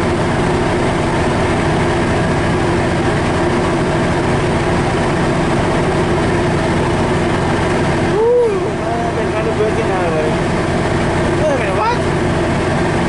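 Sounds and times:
diesel locomotive idling: 0.0 - 13.0.

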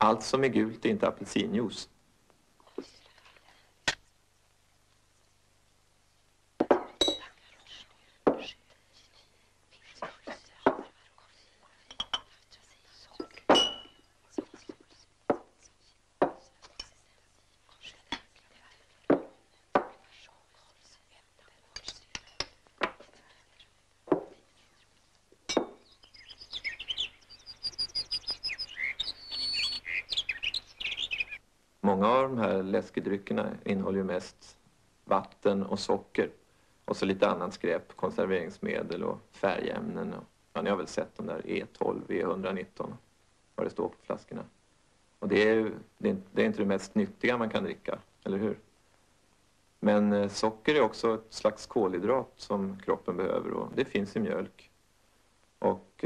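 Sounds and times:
glass bottles knocking: 6.6 - 7.3, 11.9 - 12.3, 13.2 - 14.0, 25.5 - 25.8
ringing glass clink: 6.8 - 7.2, 13.5 - 14.0
birds twittering: 25.6 - 31.4
bird whistle: 25.8 - 31.4.

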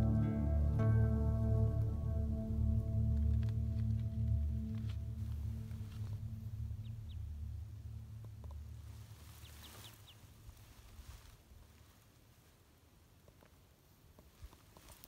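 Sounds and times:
background music: 0.0 - 9.4.

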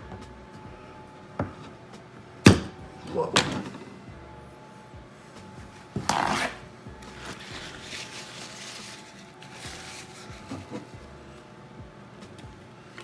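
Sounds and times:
cloth rubbing over leatherette: 6.1 - 11.0.

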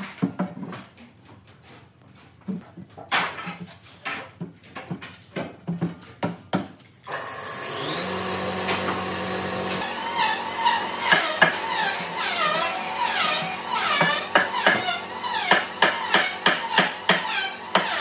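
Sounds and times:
power tool whining: 7.1 - 18.0.

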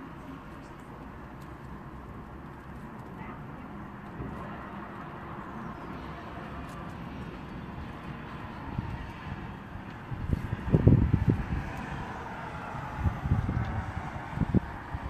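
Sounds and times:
wind on microphone: 8.6 - 15.0.

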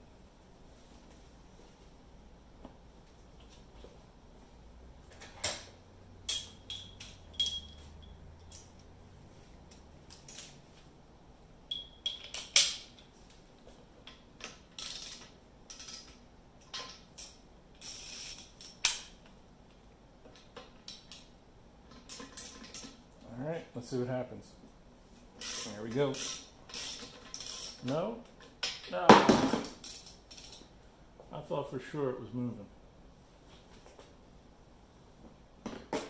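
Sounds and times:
hand tools clanking on metal: 6.2 - 8.8.

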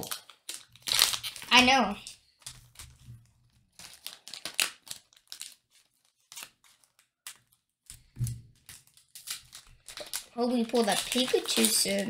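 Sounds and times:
scissors snipping foil wrappers: 8.6 - 12.0.

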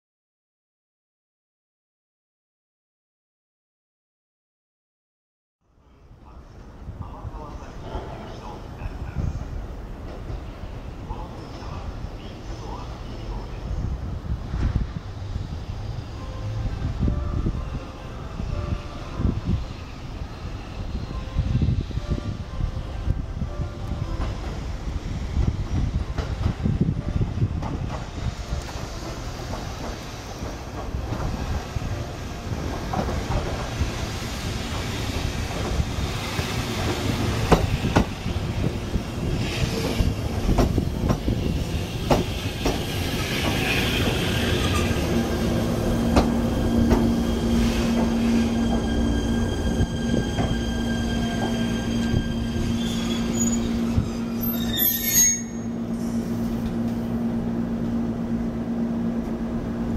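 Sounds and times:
train wheels clicking over rail joints: 27.6 - 31.7, 32.6 - 34.1, 34.7 - 38.2, 39.4 - 45.2, 46.0 - 48.9
wheels squealing on rails: 39.3 - 56.5.

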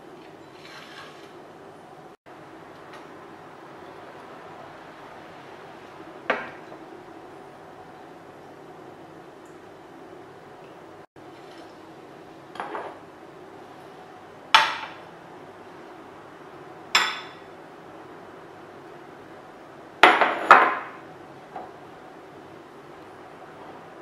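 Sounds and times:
glass bowls clinking: 16.9 - 17.5.

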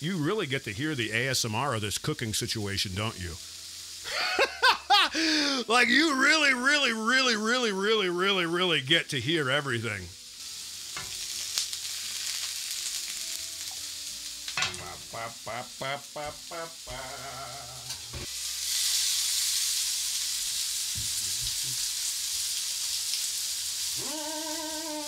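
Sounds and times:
vegetables sizzling in a pan: 0.0 - 5.6, 9.9 - 25.0
man singing: 14.7 - 18.0.

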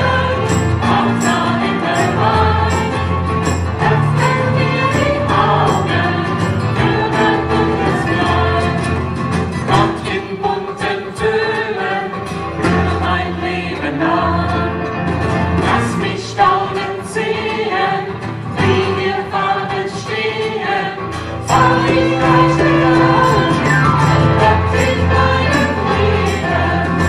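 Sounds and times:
live band playing: 0.0 - 10.3, 14.0 - 16.2, 21.1 - 27.0
crowd singing: 0.0 - 27.0.

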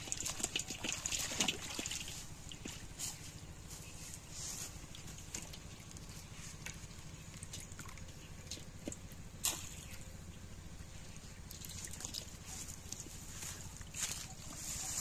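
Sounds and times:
water sloshing in clay pot: 0.0 - 3.0, 4.8 - 10.0, 11.4 - 13.9.

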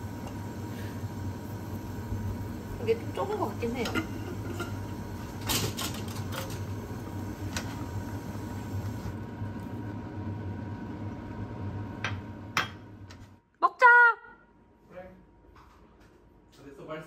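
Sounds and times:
sauce simmering in a frying pan: 0.0 - 11.6
steady low hum: 0.0 - 13.5.

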